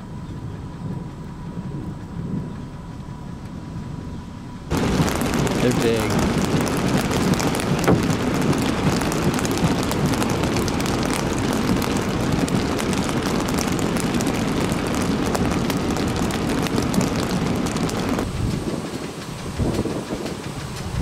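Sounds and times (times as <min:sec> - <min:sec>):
heavy rain roar: 0:04.6 - 0:21.0
hailstones striking: 0:04.7 - 0:20.6.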